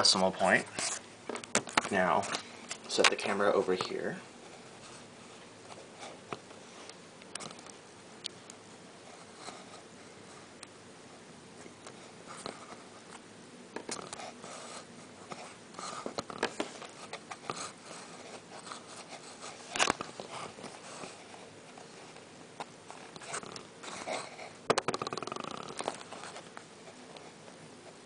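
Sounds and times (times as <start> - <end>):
camera handling rustles and clicks: 19.7 - 20.7.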